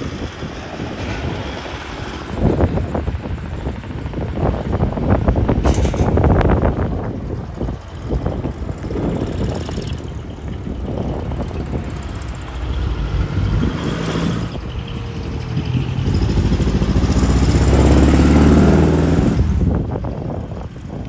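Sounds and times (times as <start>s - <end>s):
truck engine driving past: 5.0s - 20.4s.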